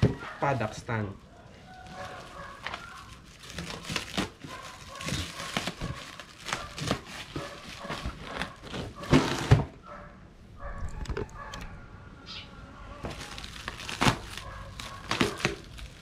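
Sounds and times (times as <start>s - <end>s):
plastic wrapping crinkling and tearing: 1.6s - 9.7s, 13.0s - 16.0s.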